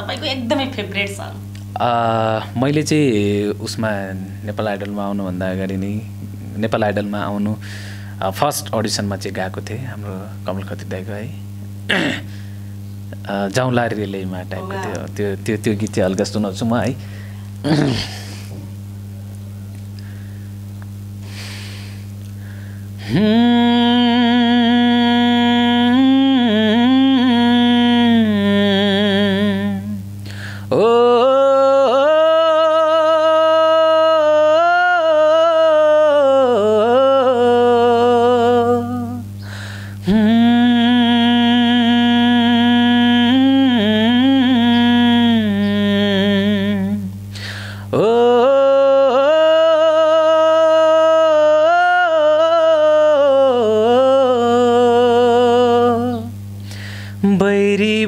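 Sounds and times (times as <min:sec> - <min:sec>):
steady low hum: 0:00.0 - 0:58.0
man singing unaccompanied: 0:13.2 - 0:16.9, 0:23.0 - 0:30.0, 0:30.7 - 0:39.3, 0:40.0 - 0:47.1, 0:47.9 - 0:56.4, 0:57.2 - 0:58.0.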